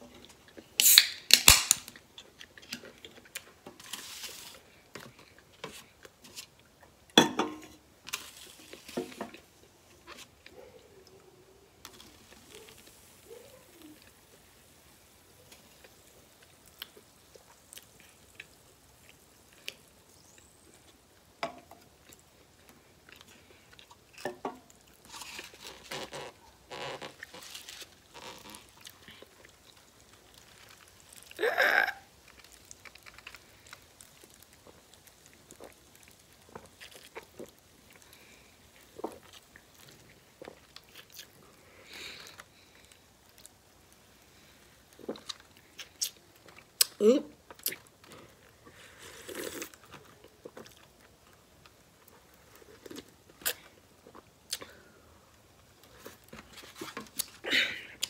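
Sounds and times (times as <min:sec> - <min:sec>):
soda can opening with hiss: 0:00.8 - 0:02.0
chewing: 0:22.0 - 0:31.4, 0:32.2 - 0:43.6, 0:44.9 - 0:54.9.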